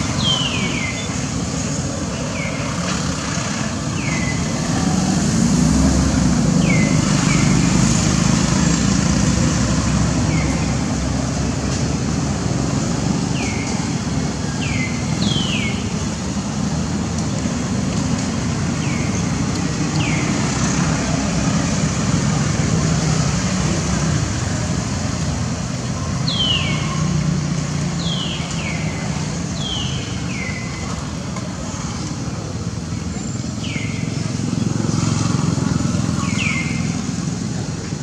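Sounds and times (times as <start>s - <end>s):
road traffic passing: 0.0s - 38.0s
vehicle passing loudly: 3.0s - 13.3s, 34.1s - 38.0s.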